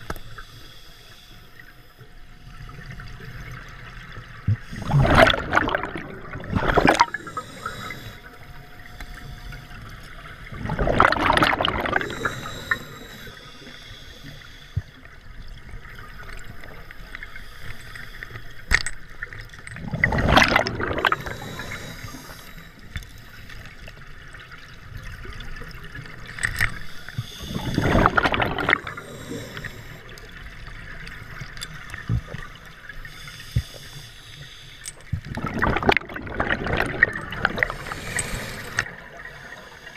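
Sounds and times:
bubbles rushing: 4.7s - 7.2s, 10.5s - 12.2s, 19.8s - 21.4s, 27.5s - 29.0s, 35.3s - 37.9s.

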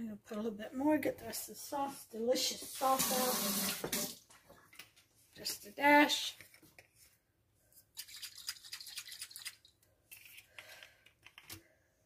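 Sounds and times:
seasoning bottle shaking: 7.9s - 9.8s.

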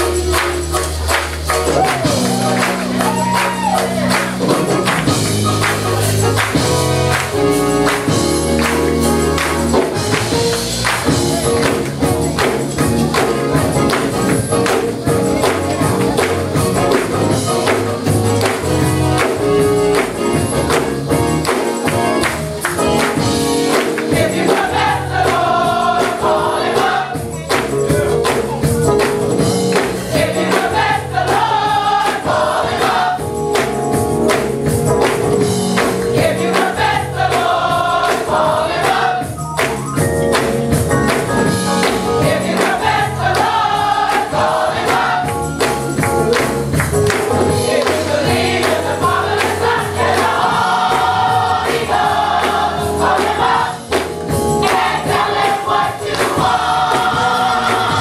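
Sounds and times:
band accompaniment: 0.0s - 58.0s
steady percussive beat: 0.0s - 58.0s
women's gospel choir singing: 23.2s - 27.4s, 29.8s - 33.7s, 36.0s - 39.4s, 42.0s - 45.8s, 47.3s - 58.0s.

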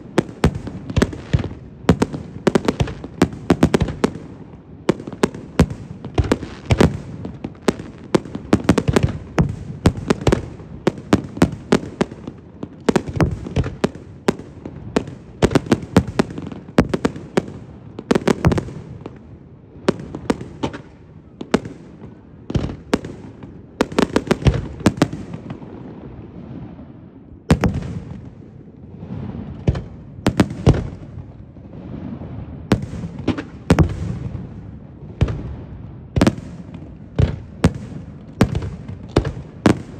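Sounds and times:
firework crackling: 0.0s - 26.9s.

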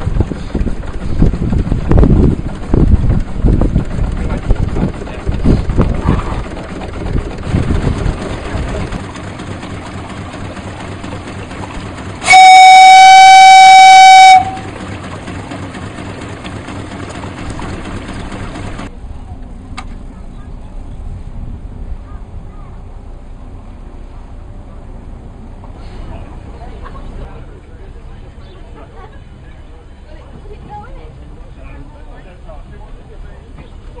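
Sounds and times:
boat under way: 0.0s - 34.0s
steam whistle: 12.2s - 14.7s.

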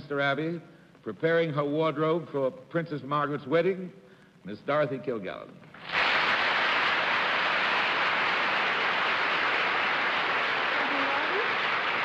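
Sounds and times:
audience applauding: 5.8s - 12.0s.

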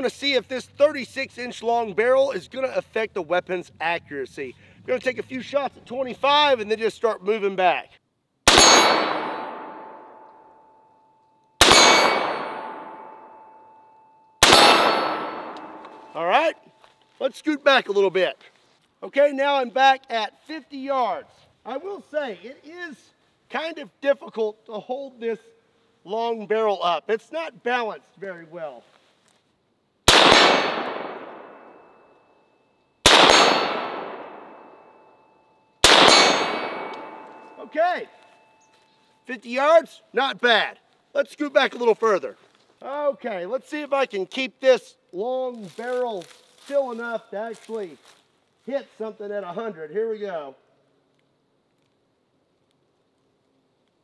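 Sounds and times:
rifle shots: 8.4s - 10.3s, 11.6s - 13.5s, 14.4s - 16.1s, 30.1s - 31.9s, 33.0s - 35.0s, 35.8s - 37.5s
steel target ringing: 8.5s - 16.8s, 30.4s - 38.8s.

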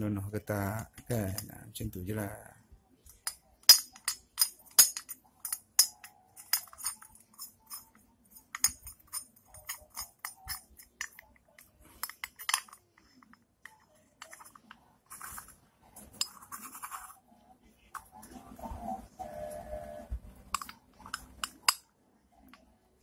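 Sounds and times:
metal covers clicking: 3.1s - 17.1s, 20.5s - 22.7s.

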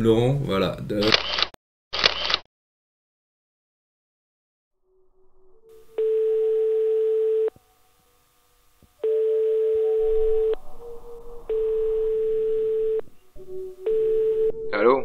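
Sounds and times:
telephone ringback tone: 5.8s - 7.6s, 9.0s - 10.6s, 11.5s - 13.1s, 13.8s - 14.6s.

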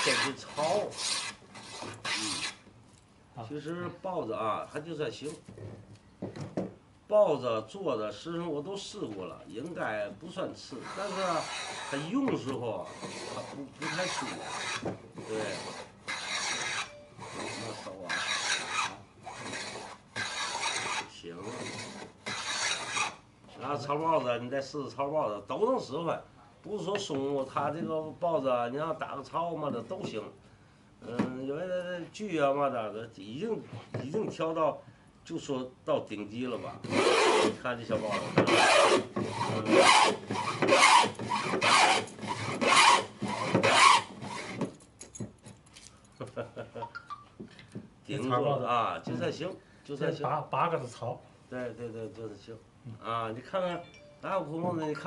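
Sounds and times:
hand plane shaving wood: 10.8s - 12.1s, 12.8s - 23.1s, 36.8s - 44.6s.

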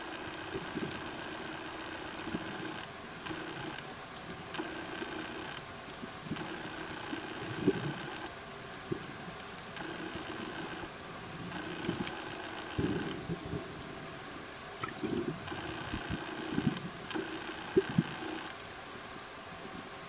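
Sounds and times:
bubbly exhale rumbles: 14.8s - 15.5s.

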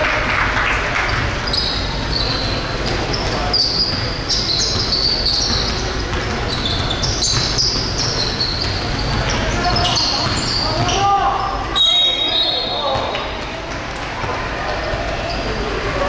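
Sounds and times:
crowd voices: 0.0s - 16.0s
shoe squeaks: 1.1s - 13.4s, 14.2s - 15.9s
basketball bouncing: 2.8s - 11.0s.

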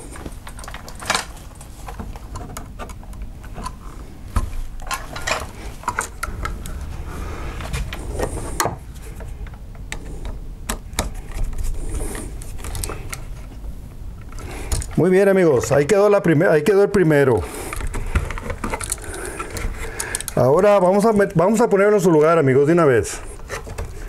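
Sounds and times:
small clicks and scrapes of hands: 7.7s - 13.6s, 17.6s - 20.4s.

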